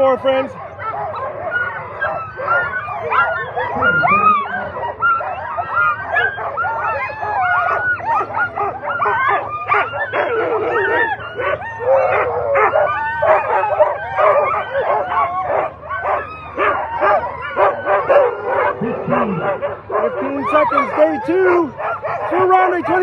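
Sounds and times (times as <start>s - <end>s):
dogs barking and yelping: 0.0s - 23.0s.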